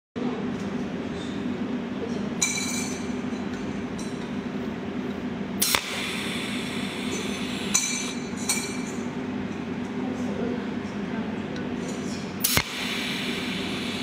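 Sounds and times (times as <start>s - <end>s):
steady low hum: 0.2s - 14.0s
welding pulse zaps: 5.6s - 7.8s, 12.4s - 14.0s.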